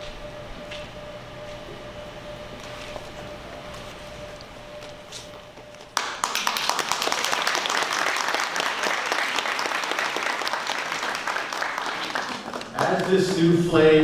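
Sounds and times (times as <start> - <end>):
audience applauding: 5.8 - 13.9.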